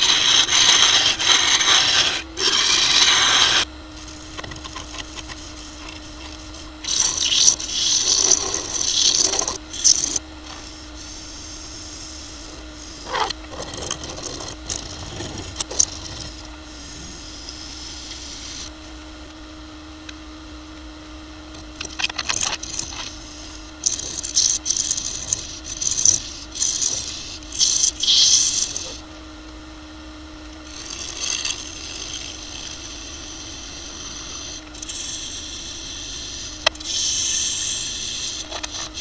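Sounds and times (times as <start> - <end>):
turning tool shaving wood: 0.0 - 16.6, 21.6 - 29.0, 30.6 - 39.0
wood lathe humming: 0.0 - 19.6, 21.6 - 39.0.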